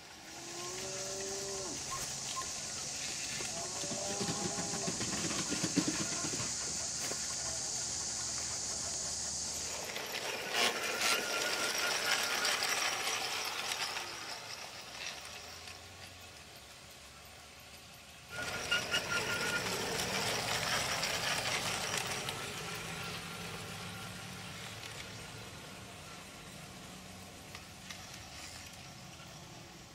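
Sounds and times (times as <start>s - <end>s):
model train mechanical rattle: 0.0s - 29.9s.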